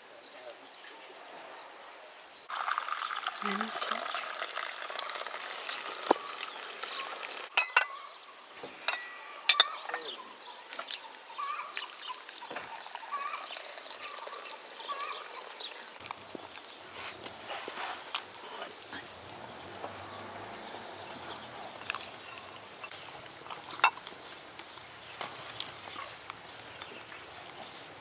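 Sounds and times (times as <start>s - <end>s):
birds chirping faintly: 0.0s - 28.0s
teacups clinking against saucers: 2.5s - 8.0s, 8.7s - 16.0s, 21.7s - 24.8s.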